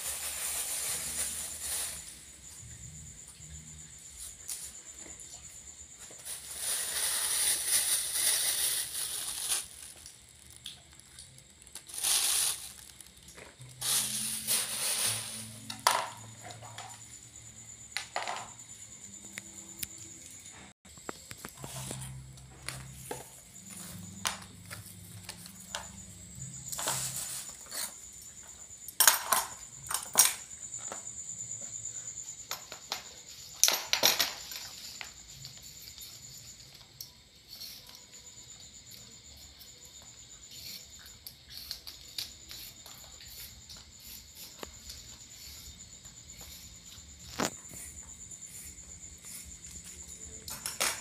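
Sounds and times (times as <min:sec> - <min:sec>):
objects set down knocking: 0:15.6 - 0:17.0, 0:18.0 - 0:18.6.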